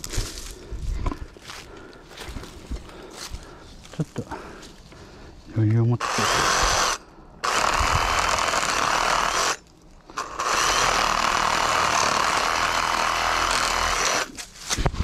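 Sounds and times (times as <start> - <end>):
power saw cutting wood: 6.0 - 14.4.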